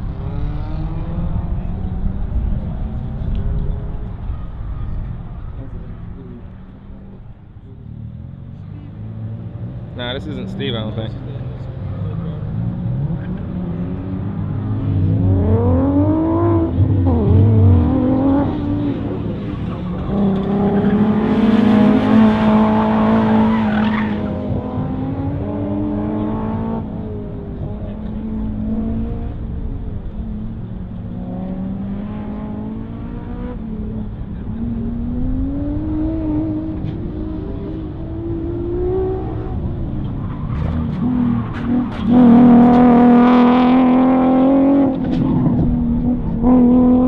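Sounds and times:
sports car engine revving: 8.1s - 47.0s
tires squealing: 16.9s - 25.4s, 38.9s - 47.0s.

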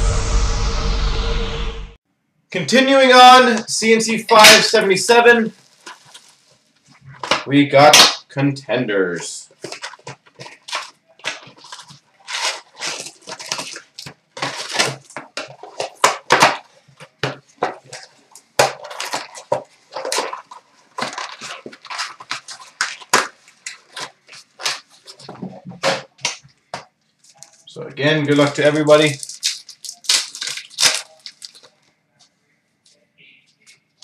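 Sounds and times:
foil wrappers crinkling and tearing: 4.3s - 7.6s, 9.2s - 32.0s.

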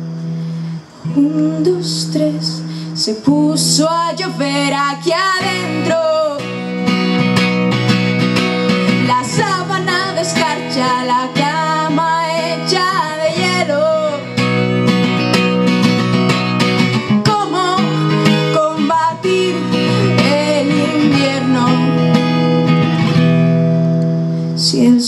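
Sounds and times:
strummed acoustic guitar: 0.0s - 24.6s
woman singing: 1.0s - 6.9s, 8.7s - 14.5s, 17.1s - 22.7s, 24.6s - 25.0s.

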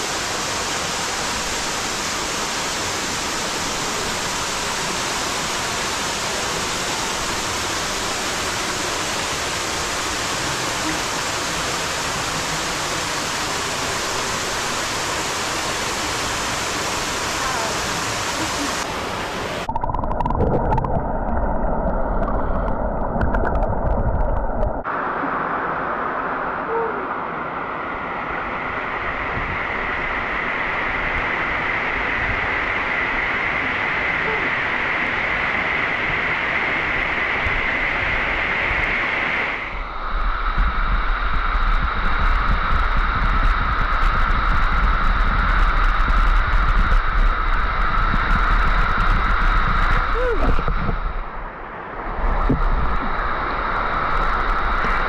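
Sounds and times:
waterfall rushing: 0.0s - 20.8s
low water rumble: 0.0s - 55.0s
underwater gurgling and sloshing: 18.8s - 26.2s, 39.6s - 55.0s.

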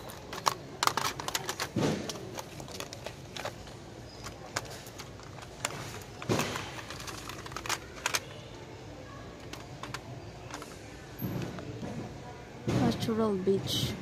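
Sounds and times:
plastic packages clicking and knocking: 0.0s - 12.1s.

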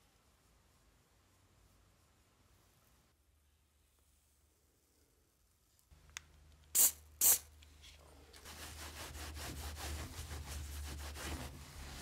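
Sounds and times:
spray bottle squirts: 6.7s - 7.5s
cloth rubbing on metal: 8.4s - 12.0s.

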